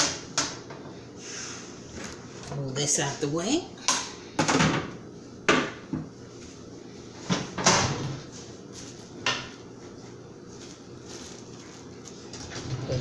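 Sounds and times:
kitchen items knocking and clunking: 3.9s - 6.1s.

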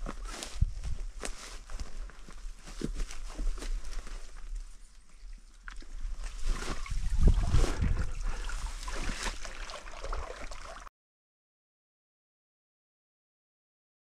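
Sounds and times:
grass and clothing rustling: 0.0s - 9.9s
wind buffeting microphone: 6.4s - 8.7s.

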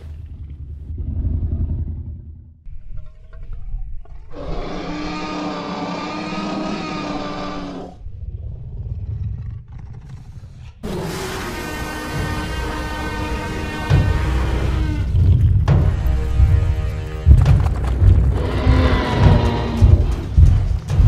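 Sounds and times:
low rumble: 0.0s - 4.3s, 11.8s - 21.0s
dinosaur roar: 4.3s - 8.0s, 9.0s - 15.4s, 18.0s - 21.0s.

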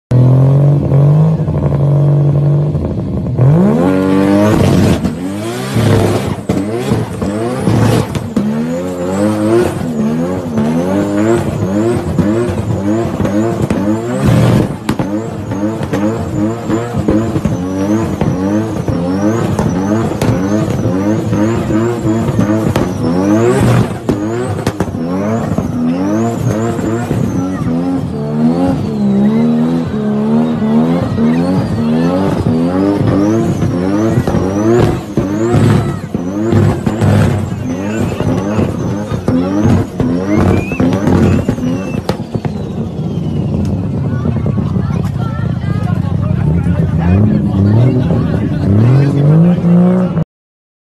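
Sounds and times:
car engine revving: 0.1s - 50.2s
tyre squeal: 4.0s - 44.2s.

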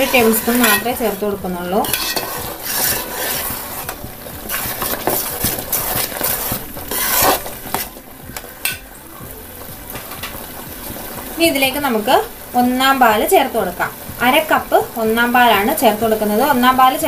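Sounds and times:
metal spatula scraping a pot: 0.0s - 8.0s
ghee sizzling: 0.0s - 17.0s
thick mixture bubbling: 0.0s - 17.0s.

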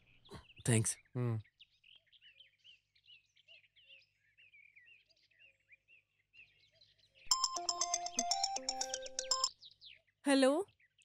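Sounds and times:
faint birds chirping: 0.0s - 11.0s
smartphone melodic ringtone: 7.3s - 9.5s.

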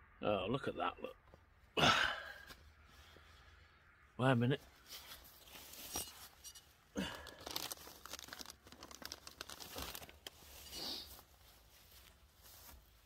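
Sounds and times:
plastic litter crinkling: 7.0s - 11.3s.

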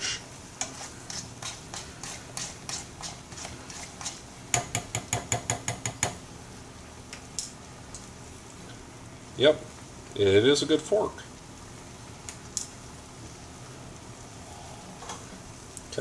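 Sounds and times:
fork scraping a frying pan: 0.0s - 4.3s.

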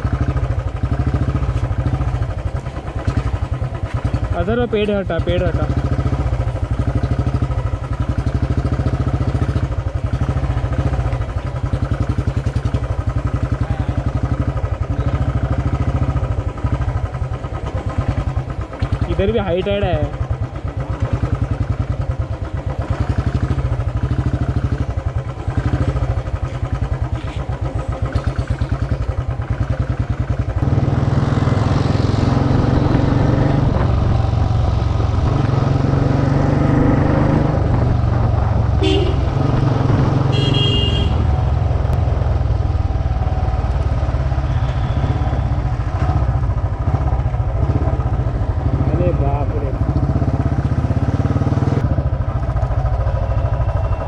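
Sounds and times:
motorcycle engine running: 0.0s - 54.0s
traffic: 0.0s - 54.0s
vehicle horn honking: 38.8s - 39.5s, 40.2s - 41.4s, 44.4s - 45.7s.

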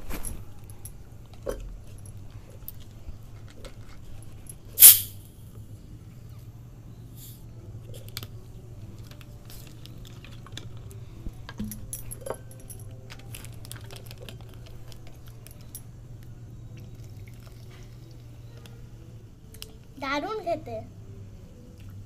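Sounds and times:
plastic bottles and packets crackling: 13.0s - 15.7s.

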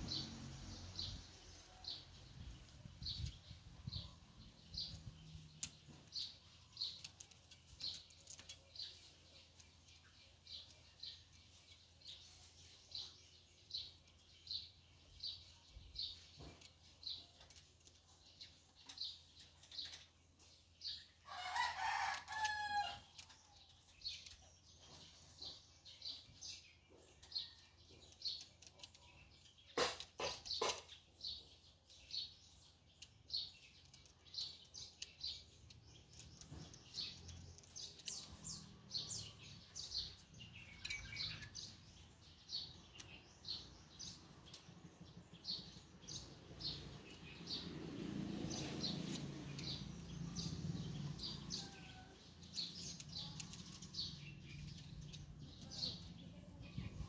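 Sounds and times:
small bird chirping: 0.0s - 57.0s
rooster crowing: 21.3s - 23.0s.

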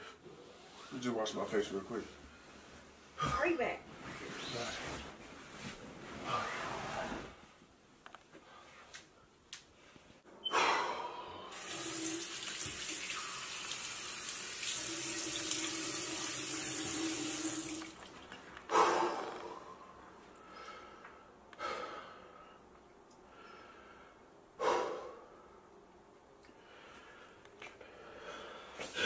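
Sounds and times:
faucet running into sink: 11.6s - 18.1s.

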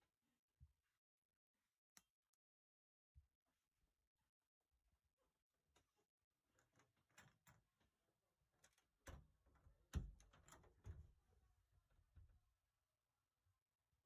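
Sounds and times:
wooden door knocks and rustles: 9.8s - 11.2s.

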